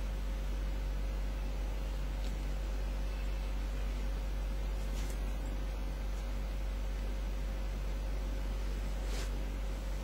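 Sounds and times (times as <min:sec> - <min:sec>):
faint steady tone: 0:00.0 - 0:10.0
low electrical hum and hiss: 0:00.0 - 0:10.0
soft rustle: 0:04.6 - 0:06.4, 0:08.2 - 0:10.0.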